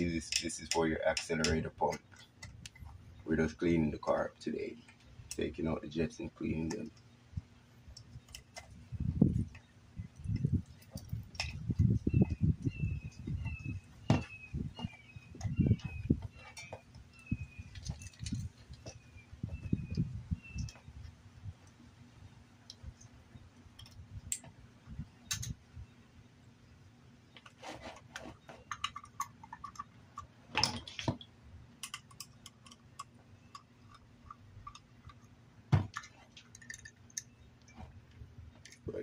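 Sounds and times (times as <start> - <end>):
metal parts clicking and knocking: 28.6 - 31.2, 31.8 - 37.7.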